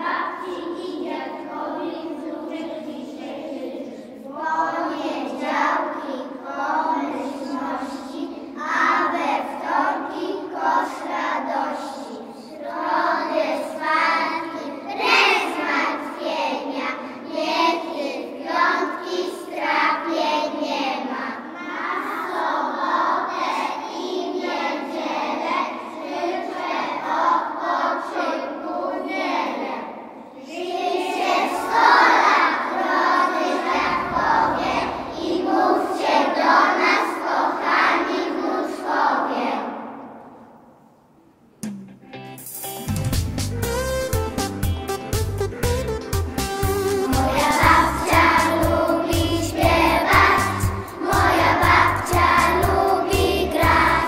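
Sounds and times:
children singing in unison: 0.0 - 40.8, 47.0 - 54.0.

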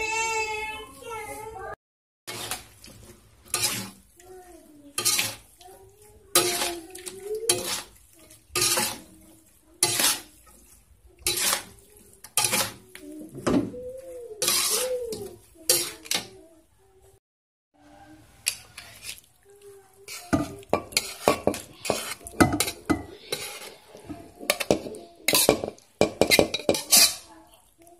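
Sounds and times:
metal spatula scraping wok: 2.3 - 4.2, 4.8 - 16.4, 18.5 - 19.2, 20.0 - 27.4.

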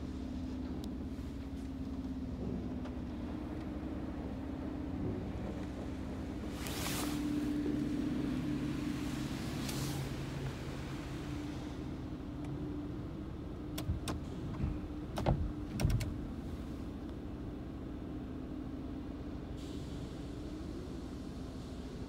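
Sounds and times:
steady low hum: 0.0 - 13.8
sharp clicks and knocks: 13.7 - 16.2.

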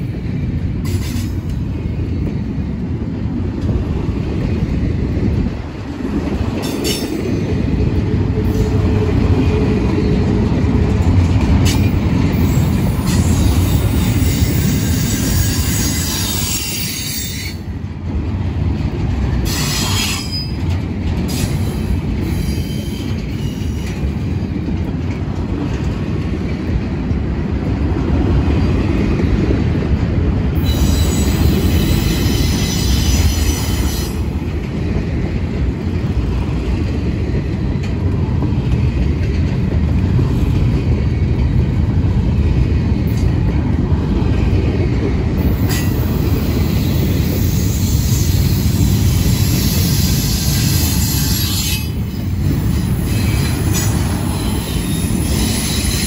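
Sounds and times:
train wheels rumbling on rails: 0.0 - 56.0
high-pitched wheel squeal: 13.1 - 17.6, 19.5 - 20.6, 30.6 - 34.2.

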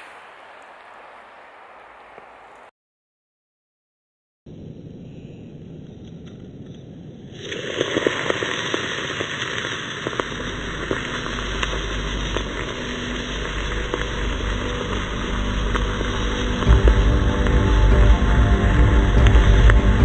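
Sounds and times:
molten metal hissing and crackling: 6.0 - 20.0
low rumble: 10.0 - 20.0.

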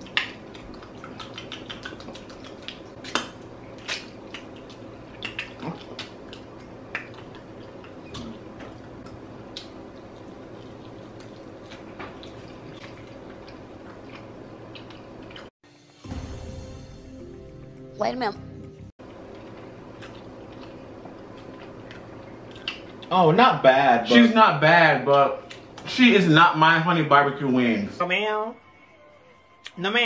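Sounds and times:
people chewing: 0.0 - 15.5, 19.2 - 23.2, 25.4 - 25.9
wet mouth clicks and lip smacks: 0.1 - 7.5, 22.5 - 23.0.

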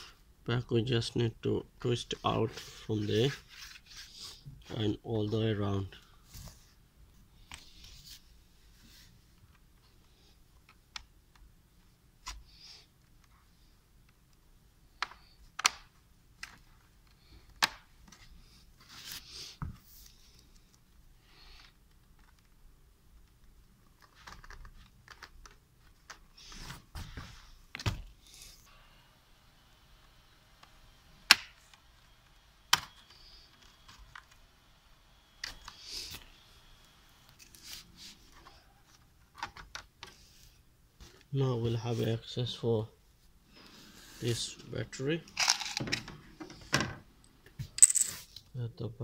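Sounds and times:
scrape: 2.5 - 4.4.

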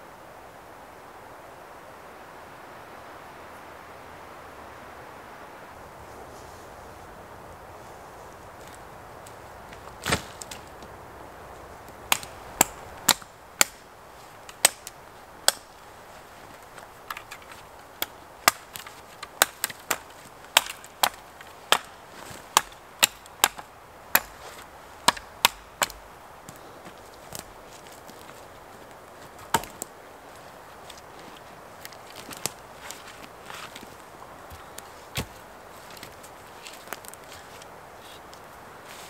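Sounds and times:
branches chopped off a pole: 8.6 - 10.9, 11.9 - 13.8, 16.6 - 28.4, 29.3 - 29.9, 31.8 - 33.9.

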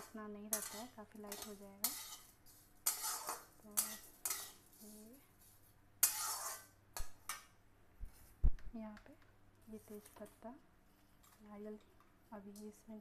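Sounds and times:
metal spatula scraping pan: 0.0 - 6.8.

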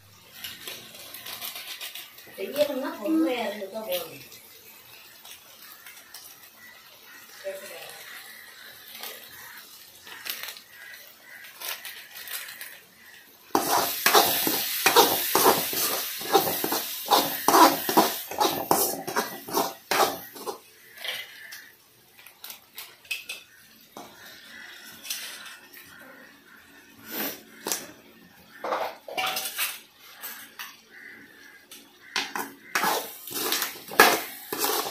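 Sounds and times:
food sizzling: 0.0 - 34.9
ladle scraping metal pan: 13.6 - 20.7, 32.7 - 34.9.

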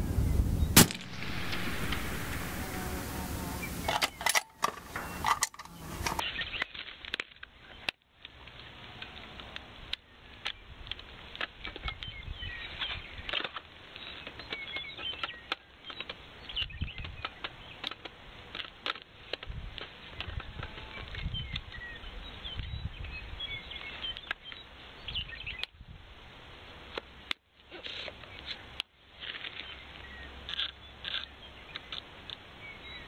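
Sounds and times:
small clicks and rubbing on scope: 3.8 - 21.8, 26.8 - 32.5.

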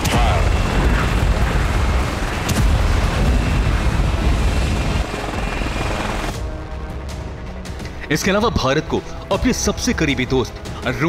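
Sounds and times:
rumble of explosions: 0.0 - 6.8.

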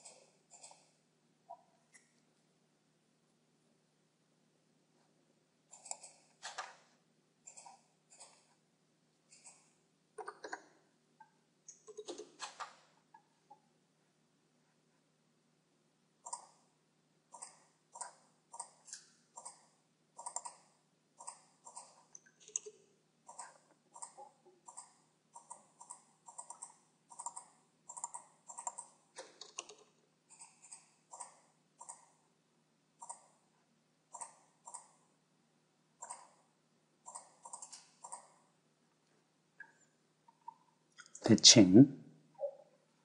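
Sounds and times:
computer mouse and keyboard clicks: 0.0 - 2.1, 5.7 - 6.8, 7.5 - 8.6, 9.3 - 13.6, 16.2 - 16.7, 17.3 - 32.2, 33.0 - 33.4, 34.1 - 35.0, 36.0 - 38.5.

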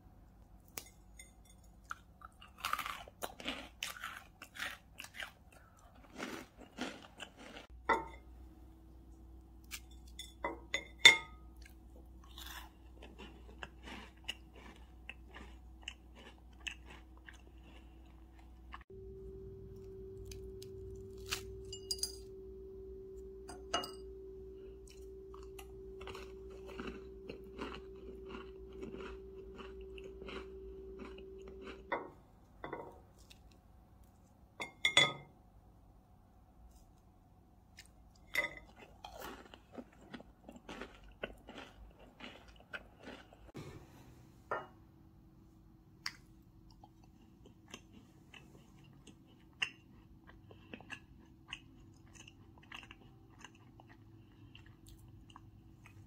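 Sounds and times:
crunchy chewing: 1.8 - 7.7, 11.6 - 18.9, 24.8 - 32.2, 37.7 - 43.6, 46.1 - 56.0.

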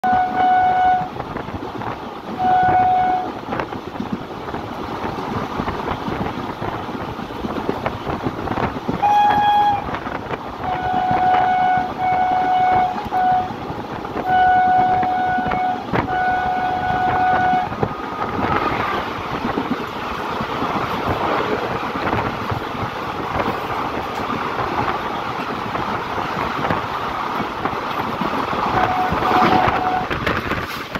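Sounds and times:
locomotive horn blasts: 0.0 - 1.1, 2.4 - 3.4, 9.0 - 10.0, 10.6 - 18.6, 28.7 - 30.3
train wheels rattling on rails: 0.0 - 30.9.

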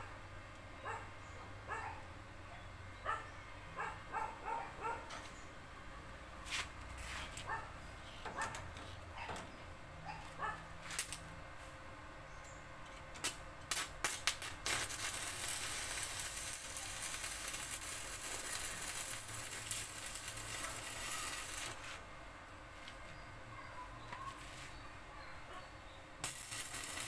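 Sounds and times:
welding arc crackling: 13.2 - 22.0, 26.2 - 27.0.

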